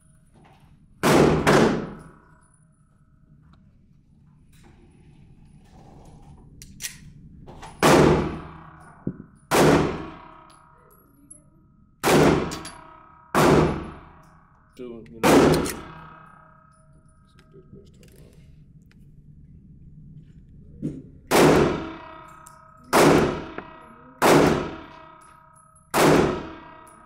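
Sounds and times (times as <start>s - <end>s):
handgun shots ringing indoors: 1.0s - 2.6s, 6.6s - 11.4s, 12.0s - 14.6s, 15.2s - 17.5s, 21.3s - 27.0s.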